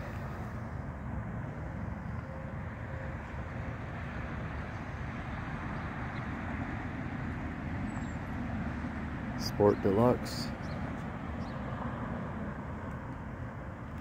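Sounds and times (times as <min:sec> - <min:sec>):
low outdoor ambient rumble: 0:00.0 - 0:14.0.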